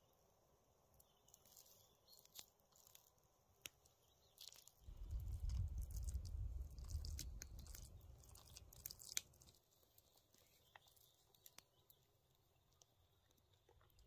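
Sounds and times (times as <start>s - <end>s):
low rumble: 4.9s - 8.5s.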